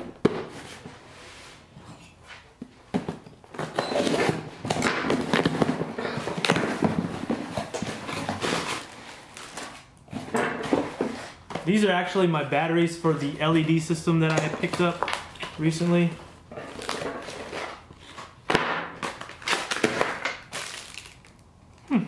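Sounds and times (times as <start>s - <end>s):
packaging rustling: 3.6s - 10.0s, 19.0s - 21.4s.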